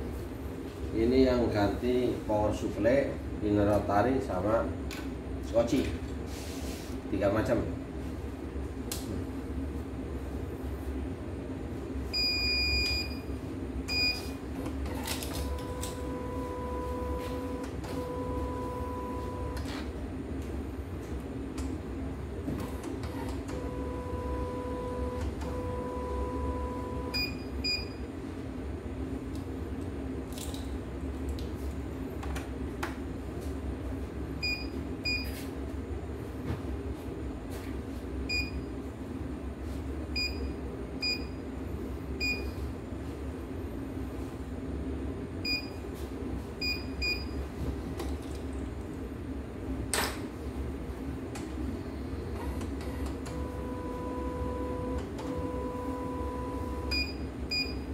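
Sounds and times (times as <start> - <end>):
steady machine hum: 0.0 - 57.9
embroidery machine beeping: 15.4 - 19.7, 23.1 - 28.1, 52.5 - 57.9.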